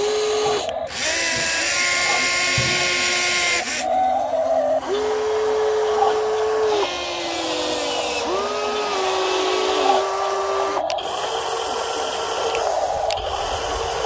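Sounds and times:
small electric motors whining: 0:00.0 - 0:14.0.

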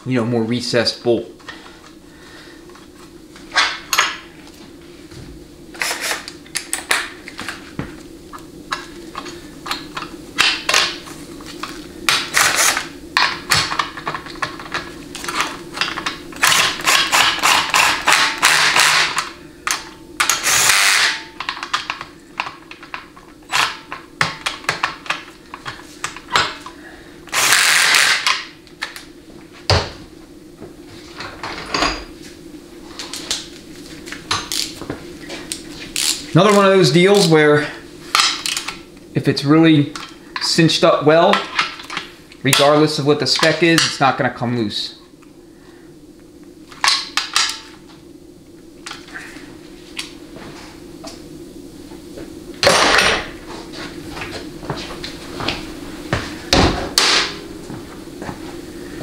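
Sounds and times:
cordless drill driving bolts: 0:16.4 - 0:19.2, 0:20.2 - 0:21.1, 0:27.3 - 0:28.3.

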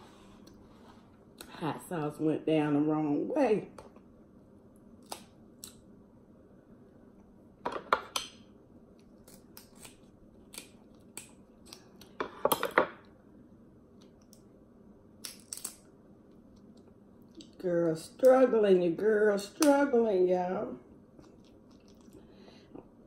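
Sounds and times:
crab shells cracking: 0:09.0 - 0:12.2, 0:15.2 - 0:15.9.

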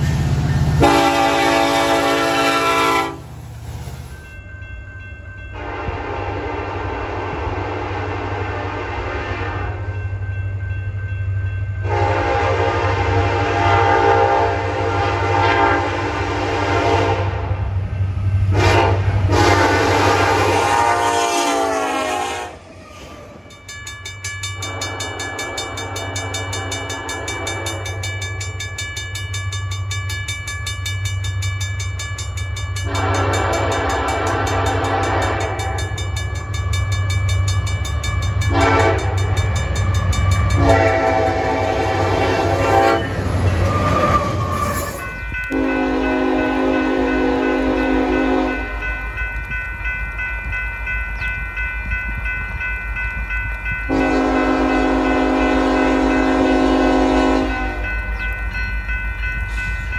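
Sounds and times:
railroad crossing bell ringing: 0:00.0 - 0:03.3, 0:04.0 - 0:59.9
locomotive rumble: 0:00.0 - 0:59.9
locomotive horn blasts: 0:00.8 - 0:03.3, 0:05.6 - 0:09.9, 0:11.8 - 0:17.4, 0:18.5 - 0:22.6, 0:32.8 - 0:35.8, 0:38.5 - 0:39.2, 0:40.5 - 0:43.1, 0:45.5 - 0:48.9, 0:53.9 - 0:58.0.

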